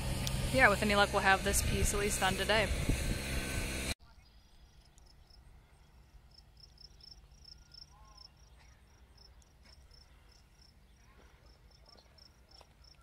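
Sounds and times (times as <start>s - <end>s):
low steady rumble: 0.0s - 4.0s
crickets chirping: 4.6s - 13.0s.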